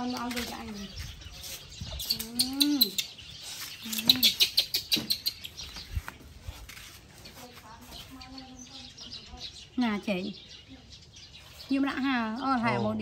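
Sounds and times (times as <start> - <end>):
baby monkey chirping squeaks: 0.0 - 6.1.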